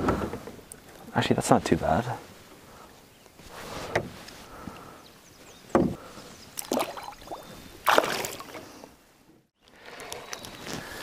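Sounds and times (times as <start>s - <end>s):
knocks and thumps on wooden canoe: 3.6s - 4.2s, 5.6s - 6.1s
fish splashing into water: 6.6s - 8.6s.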